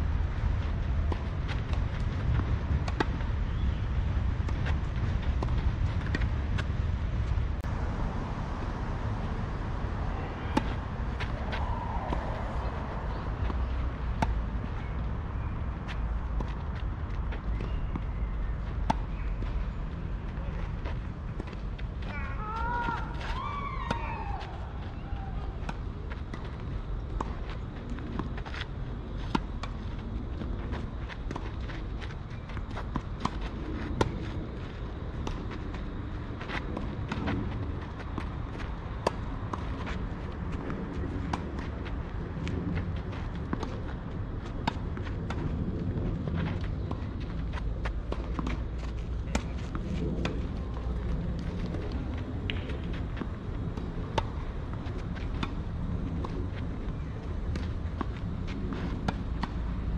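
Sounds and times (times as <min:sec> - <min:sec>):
low rumble: 0:00.0 - 0:22.2.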